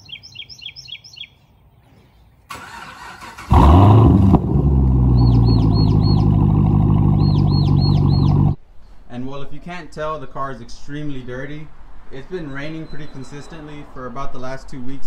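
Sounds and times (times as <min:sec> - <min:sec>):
birds chirping: 0:00.0 - 0:02.8, 0:04.8 - 0:08.6, 0:12.2 - 0:13.8
car engine starting and idling: 0:02.5 - 0:08.6.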